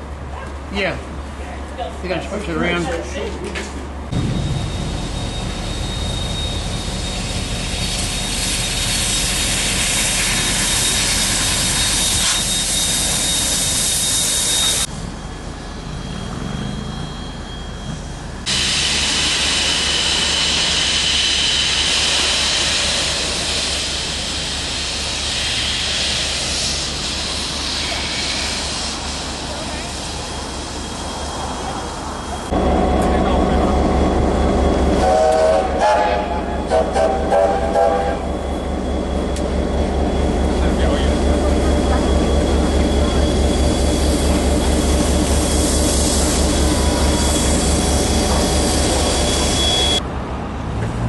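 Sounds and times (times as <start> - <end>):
steam locomotive hissing: 4.1 - 50.0
thin whistle-like tone: 4.2 - 9.0, 10.4 - 18.3, 42.2 - 50.0.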